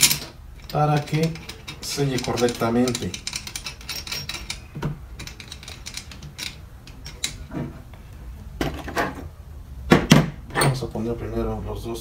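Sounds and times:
hand tool clicking on metal: 0.0 - 7.4.

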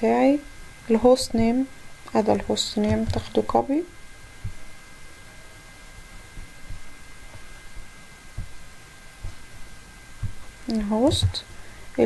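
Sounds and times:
faint electrical whine: 0.0 - 12.0
steady hiss: 0.1 - 12.0
soft low knocks: 6.3 - 11.5.

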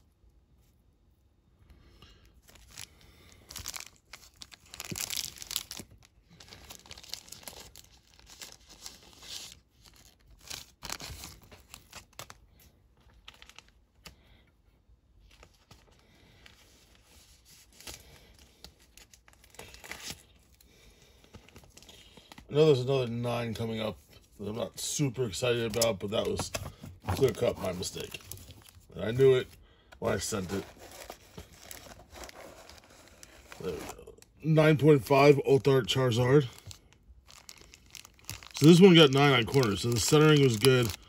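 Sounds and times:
plastic bags crinkling: 2.4 - 12.4, 13.0 - 14.0, 24.8 - 41.0.

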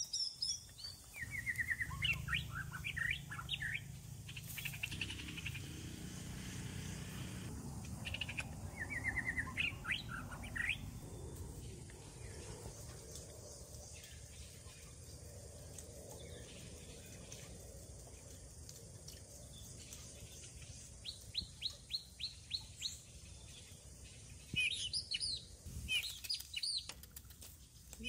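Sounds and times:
bird chirping: 0.0 - 15.4, 19.3 - 28.0
faint outdoor background noise: 0.0 - 28.0.

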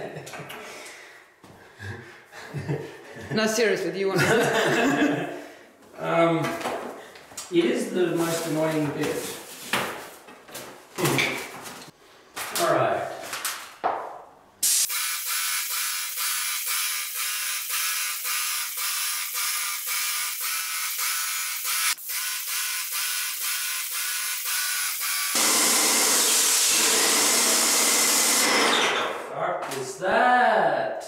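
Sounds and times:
paint sprayer hiss: 14.6 - 25.6
paint sprayer pulsing buzz: 14.6 - 28.8.

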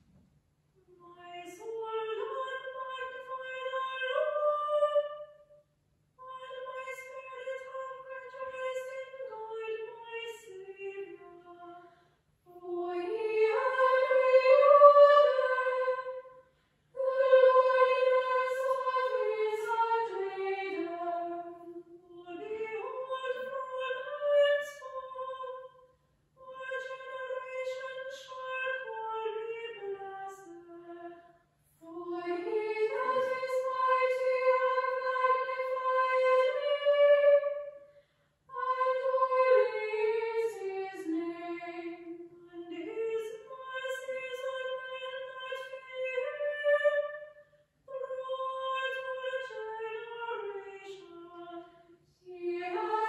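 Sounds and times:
female choir singing unaccompanied: 12.5 - 16.4, 17.0 - 25.8, 26.4 - 31.2, 31.8 - 37.9, 38.5 - 47.3, 47.9 - 53.0.

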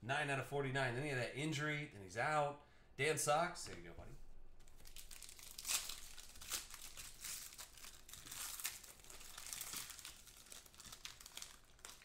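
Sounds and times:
foil wrapper crinkling and tearing: 4.7 - 12.0.

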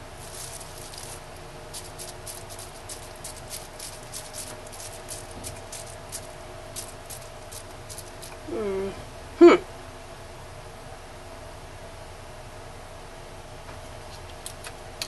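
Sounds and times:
bubble wrap crinkling: 0.0 - 8.4
faint steady hum: 0.0 - 15.0.

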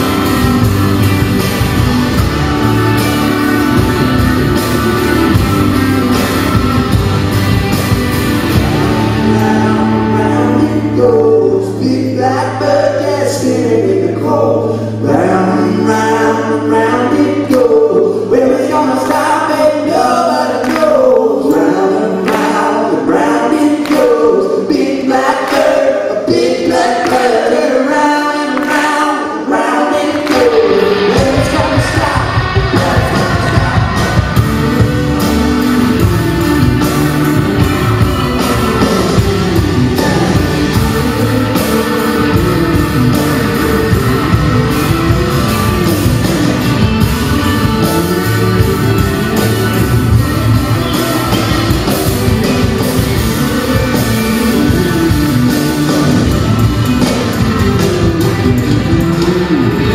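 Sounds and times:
rock band playing: 0.0 - 59.9
voices singing together: 8.4 - 34.9, 36.4 - 46.7
hand claps: 19.0 - 19.5, 20.6 - 21.6, 22.2 - 22.8, 23.8 - 24.4, 25.4 - 26.0, 27.0 - 27.5, 28.5 - 29.0, 30.1 - 30.9.

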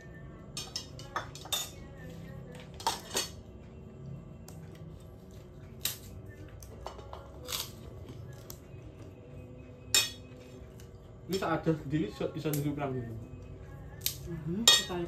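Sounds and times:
spoons clinking on metal plates: 0.6 - 1.9, 2.7 - 3.4, 9.9 - 10.3, 14.6 - 15.0.

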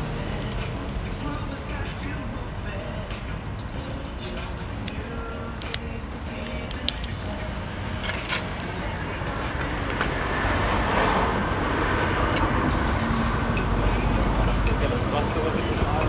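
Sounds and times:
street traffic rumbling: 0.0 - 16.0
light clicks and clinks on table: 8.0 - 8.5
vehicle passing close by: 8.9 - 15.2.

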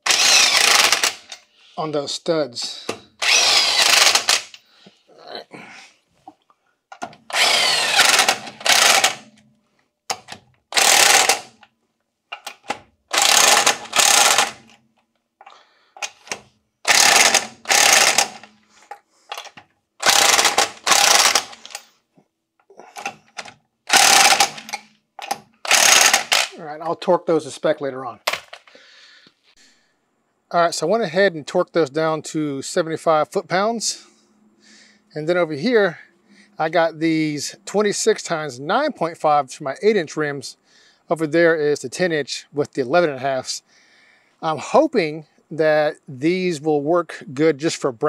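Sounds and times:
impact gun bursts: 0.0 - 1.3, 3.2 - 4.6, 7.3 - 9.3, 10.7 - 11.5, 13.1 - 14.6, 16.9 - 18.5, 20.0 - 21.8, 23.9 - 26.6.

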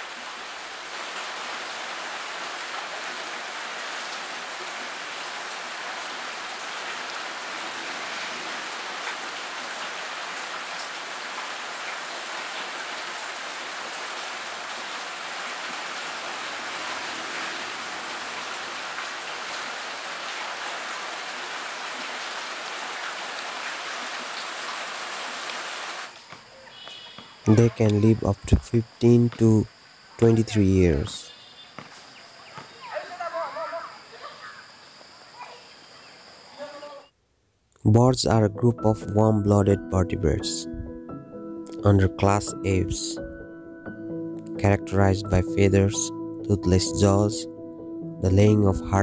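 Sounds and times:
rain falling on water: 0.0 - 27.0.

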